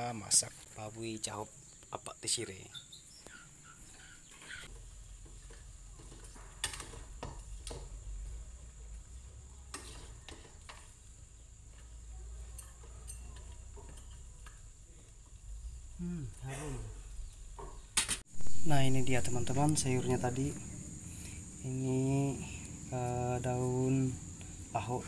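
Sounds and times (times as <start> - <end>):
metal pot and utensils clinking: 9.7 - 11.0, 11.7 - 14.7.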